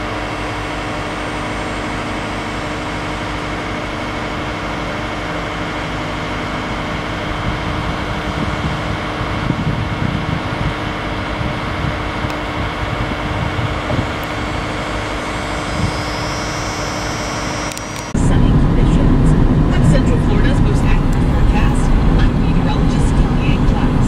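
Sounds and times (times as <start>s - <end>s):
engine humming: 0.0s - 24.0s
low rumble: 6.6s - 24.0s.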